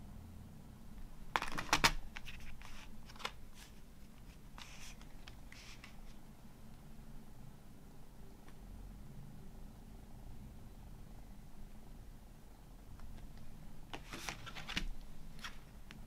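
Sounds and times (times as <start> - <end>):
papery rustle: 1.4 - 6.2.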